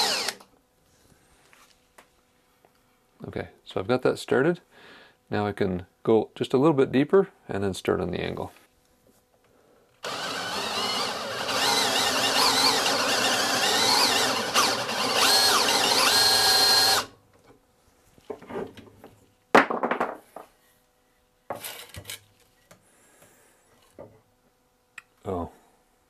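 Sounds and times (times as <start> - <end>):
power drill boring into wood: 0.0 - 0.4, 10.0 - 17.1.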